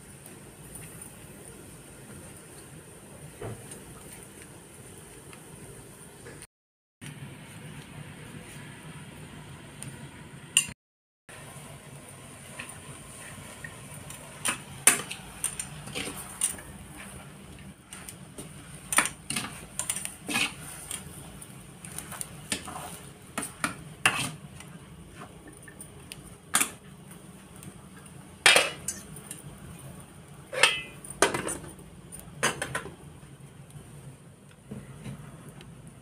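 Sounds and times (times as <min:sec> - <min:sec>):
metal spoon scraping a pan: 0:18.9 - 0:21.2, 0:21.9 - 0:24.8, 0:30.5 - 0:31.6
metal lid clanking on pan: 0:30.5 - 0:31.6.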